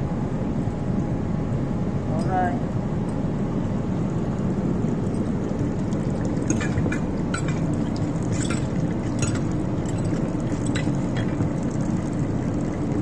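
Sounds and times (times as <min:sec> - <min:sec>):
steady low rumble: 0:00.0 - 0:13.0
short sharp splashes or clinks: 0:06.2 - 0:11.5.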